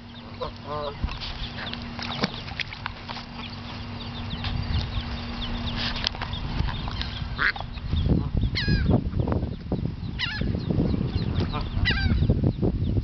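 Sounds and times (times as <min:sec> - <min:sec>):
wind rumble on microphone: 0:00.0 - 0:13.0
geese honking: 0:03.2 - 0:09.0, 0:10.2 - 0:12.2.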